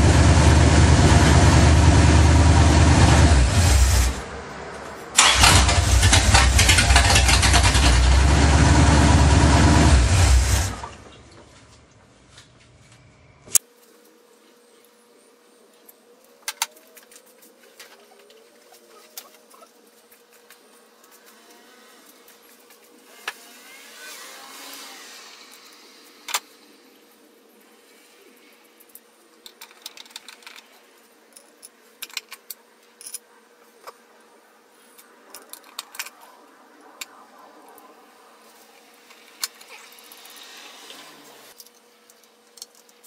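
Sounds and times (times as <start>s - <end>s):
faint steady hum: 10.4s - 43.0s
metallic clicks of parts handled: 35.0s - 36.2s, 41.5s - 43.0s.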